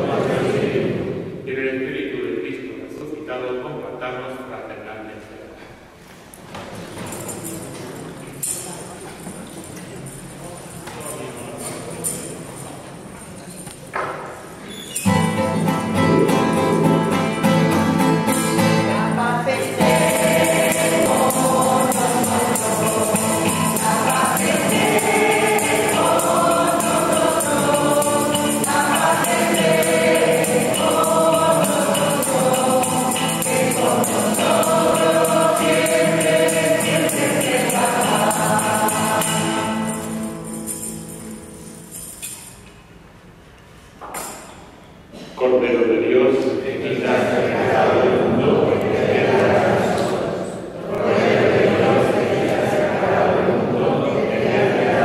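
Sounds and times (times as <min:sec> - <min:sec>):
choir singing a hymn: 0:00.0 - 0:01.4, 0:15.1 - 0:41.0, 0:46.6 - 0:55.0
tambourine: 0:14.8 - 0:42.8.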